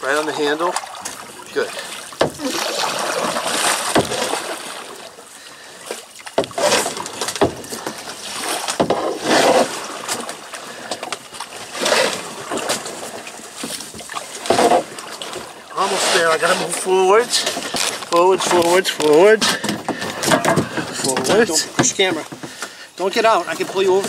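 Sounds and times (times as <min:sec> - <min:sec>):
water splashing around kayak: 0:00.0 - 0:24.0.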